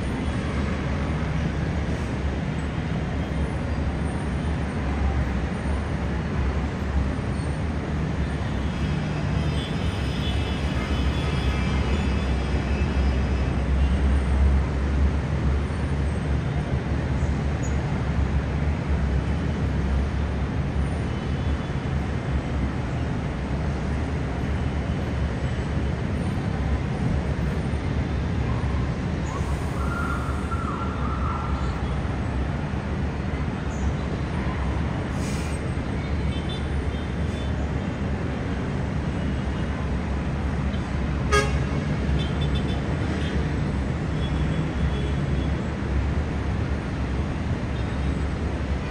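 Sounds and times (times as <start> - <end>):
distant road traffic rumble: 0.0 - 48.9
car horn: 41.3 - 42.7.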